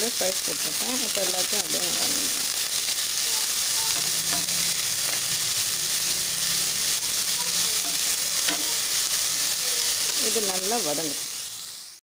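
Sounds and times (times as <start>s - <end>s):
onions sizzling in oil: 0.0s - 12.0s
spatula tapping pot: 7.8s - 8.7s.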